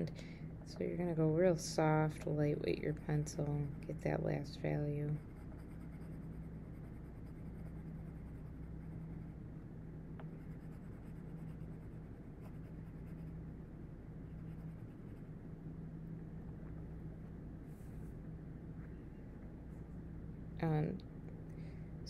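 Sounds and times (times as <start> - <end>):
low hum: 0.0 - 22.0
pencil scratching on paper: 5.1 - 9.3, 10.4 - 13.4.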